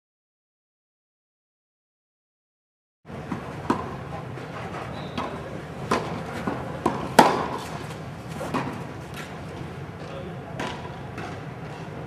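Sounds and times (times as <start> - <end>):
steady background noise: 3.1 - 12.0
tennis balls hit and bouncing: 3.1 - 12.0.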